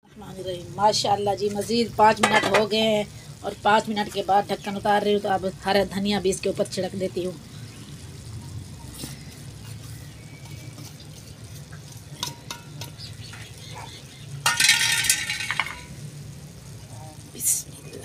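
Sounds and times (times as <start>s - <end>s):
pot simmering with low rumble: 0.0s - 18.0s
steel lid clattering and scraping: 2.0s - 2.9s, 10.7s - 13.5s, 14.4s - 15.9s.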